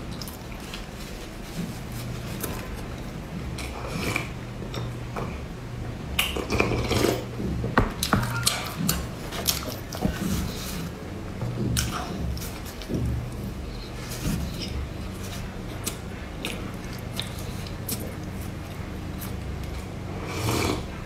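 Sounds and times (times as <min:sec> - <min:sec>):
light chewing: 0:08.0 - 0:20.0.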